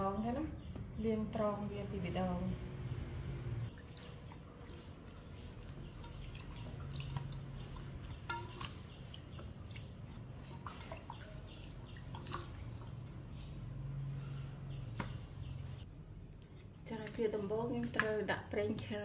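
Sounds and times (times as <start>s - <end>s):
water sloshing in metal bowl: 3.7s - 14.2s.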